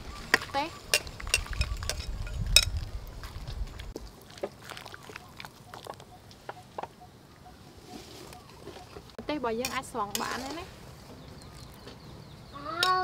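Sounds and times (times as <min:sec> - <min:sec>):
metal tongs clinking on cookware: 0:09.6 - 0:10.6.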